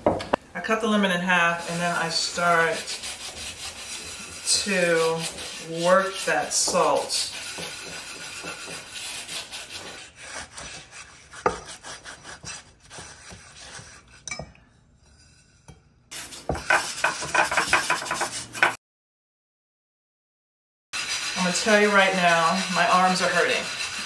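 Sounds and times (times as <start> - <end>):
salt scrubbing in skillet: 1.6 - 14.2, 15.2 - 18.8.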